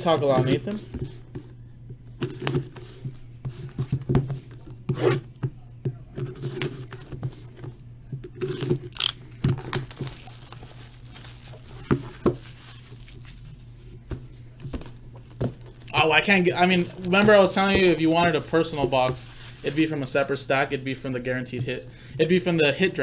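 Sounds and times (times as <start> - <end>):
crinkly rustle: 9.6 - 13.9, 14.8 - 20.3.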